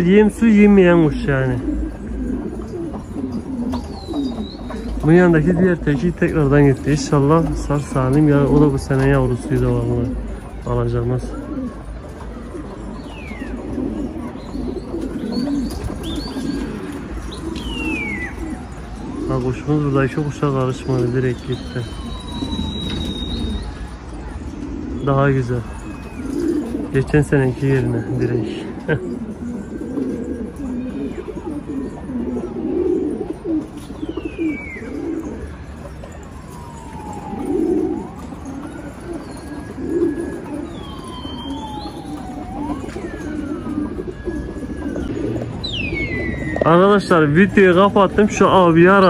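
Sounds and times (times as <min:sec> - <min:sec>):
pigeons cooing: 0:00.0 - 0:49.0
higher bird chirps: 0:01.0 - 0:05.4, 0:12.8 - 0:19.3, 0:20.8 - 0:26.7, 0:33.8 - 0:35.3, 0:45.1 - 0:47.2
falling whistle-like bird call: 0:21.6 - 0:23.8.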